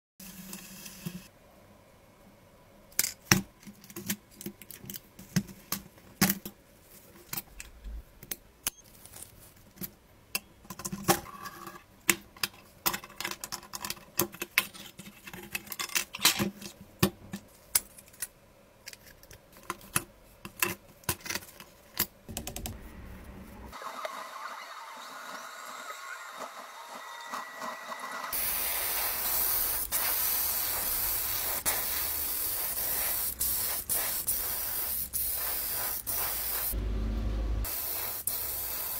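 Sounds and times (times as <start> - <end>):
airbrush spraying hiss: 28.3 - 36.8, 37.6 - 38.9.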